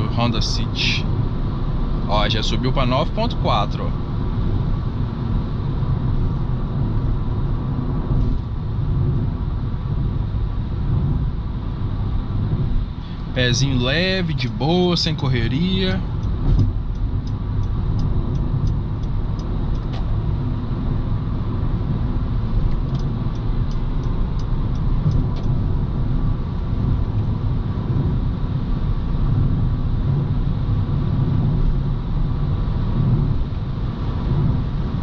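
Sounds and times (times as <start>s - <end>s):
car engine and tyre rumble: 0.0s - 35.0s
faint light ticks: 16.2s - 20.1s, 22.7s - 25.6s.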